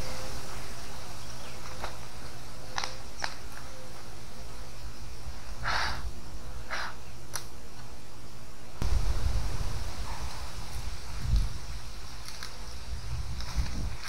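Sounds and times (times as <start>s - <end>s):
embers and sticks scraping: 0.0s - 4.5s, 10.2s - 14.0s.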